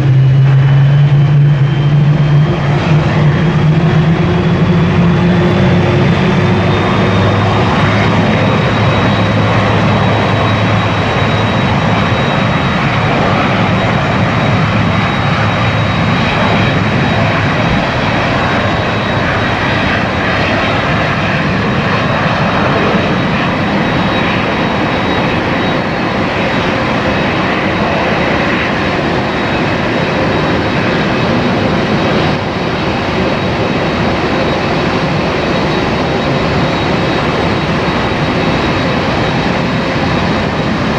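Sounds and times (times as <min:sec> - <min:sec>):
high engine whine: 0:00.0 - 0:40.9
jet engine roar: 0:00.0 - 0:40.9.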